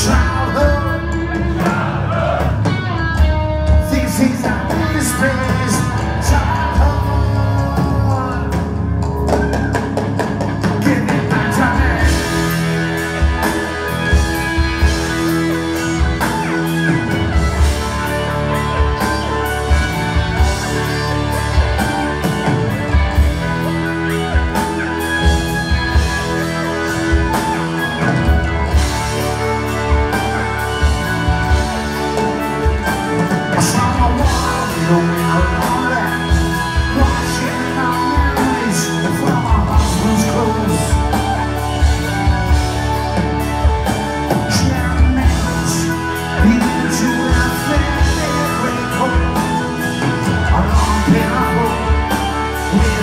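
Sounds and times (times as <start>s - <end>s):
drums: 0.0s - 53.0s
electric guitar: 0.0s - 53.0s.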